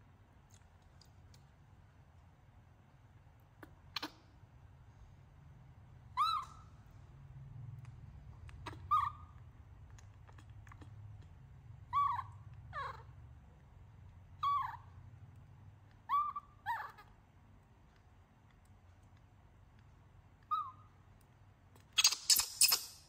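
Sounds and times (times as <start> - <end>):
baby monkey coo calls: 3.5 - 4.3, 6.1 - 6.8, 8.5 - 9.4, 11.8 - 13.2, 14.4 - 15.0, 15.9 - 17.2, 20.4 - 21.0, 21.9 - 23.0.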